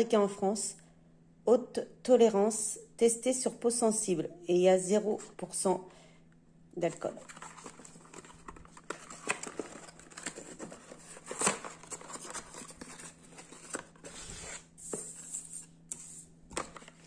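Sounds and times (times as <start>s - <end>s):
packing paper crinkling: 7.1s - 17.0s.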